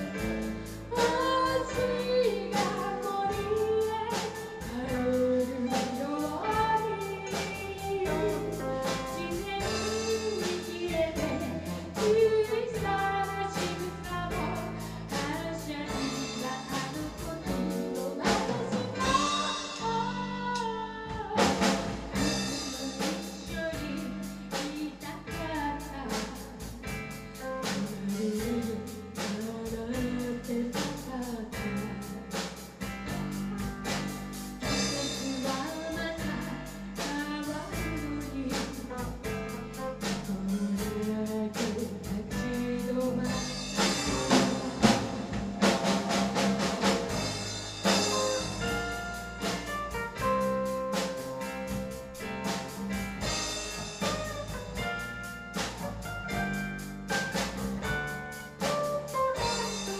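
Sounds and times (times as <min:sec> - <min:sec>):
woman singing: 0:00.0 - 0:32.5, 0:33.6 - 0:47.2
live rock band playing: 0:00.0 - 0:59.9.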